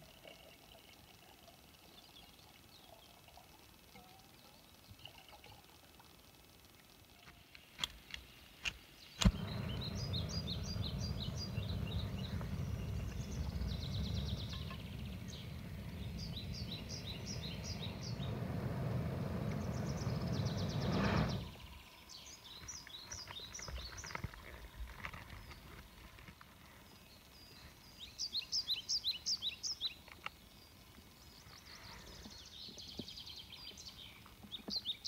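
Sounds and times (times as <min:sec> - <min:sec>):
stove igniter clicks: 0:07.8 - 0:18.6
birds chirping: 0:08.9 - 0:25.8
gas burner pop: 0:09.2 - 0:21.4
gas burner rushing: 0:09.2 - 0:21.8.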